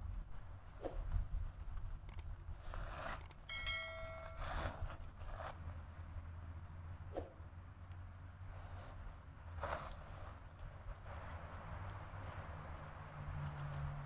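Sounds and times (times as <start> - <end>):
brief ringing tone: 3.5 - 4.8
tent fabric rustling: 8.5 - 10.8.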